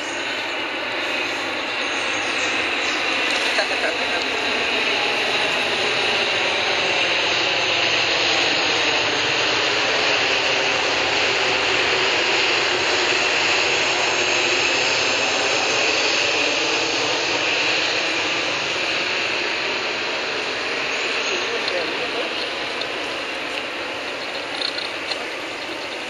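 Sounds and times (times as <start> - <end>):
jet engines roaring overhead: 0.0 - 26.0.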